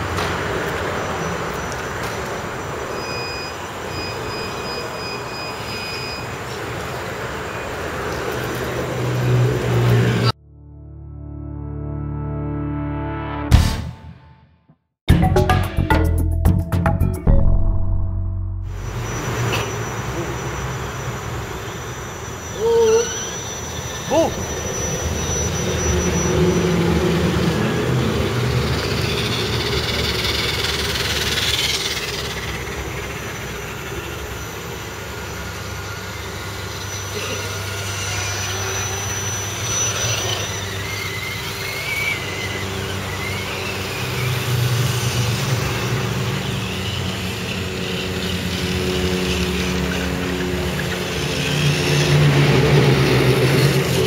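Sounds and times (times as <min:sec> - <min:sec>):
toy truck motors driving past: 0:18.8 - 0:54.0.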